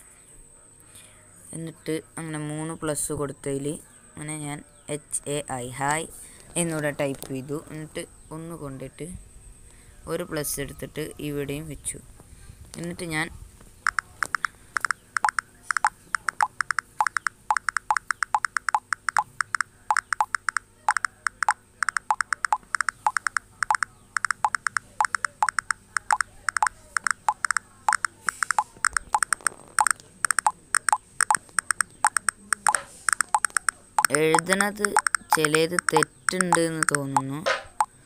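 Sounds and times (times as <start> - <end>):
phone electronic blips: 13.8 - 37.9.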